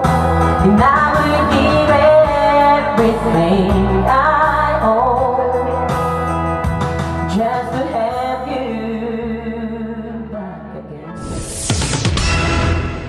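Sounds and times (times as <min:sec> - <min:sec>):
person singing over backing music: 0:00.0 - 0:06.2, 0:07.3 - 0:11.2
bright music: 0:00.0 - 0:07.4.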